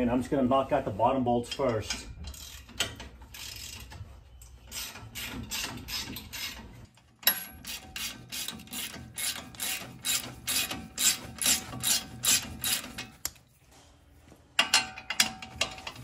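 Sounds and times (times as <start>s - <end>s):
ratchet wrench clicking: 2.2s - 3.9s, 7.3s - 13.0s.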